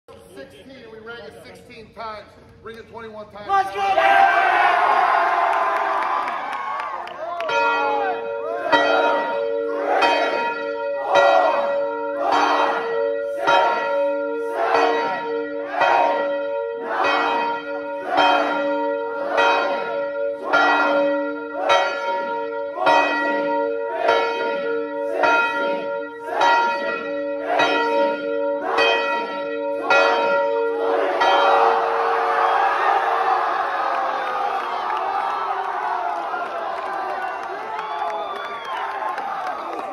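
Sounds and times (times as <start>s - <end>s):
crowd cheering: 3.5s - 11.6s, 29.8s - 39.9s
large bell ringing: 7.2s - 33.9s.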